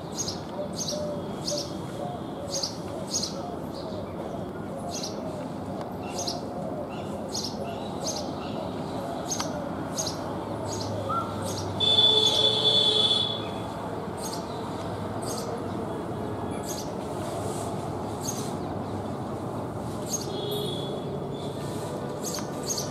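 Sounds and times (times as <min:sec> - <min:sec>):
sparrow chirping: 0:00.0 - 0:01.9, 0:07.0 - 0:13.6, 0:14.2 - 0:15.7, 0:16.6 - 0:17.0, 0:18.0 - 0:18.7, 0:20.0 - 0:21.5, 0:22.2 - 0:22.9.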